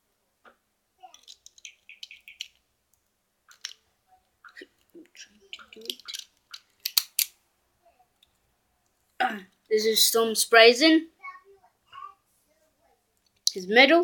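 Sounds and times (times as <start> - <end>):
plastic toy parts clicking and rattling: 1.0 - 3.9, 4.5 - 7.4.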